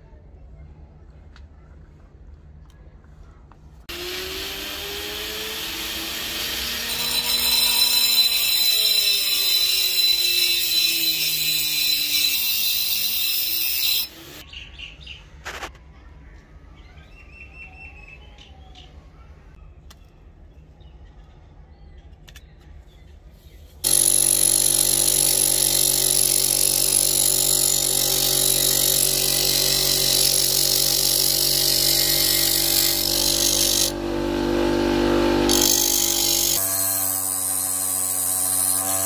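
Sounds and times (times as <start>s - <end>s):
bench grinder motor whine: 3.9s - 14.4s, 27.6s - 37.1s.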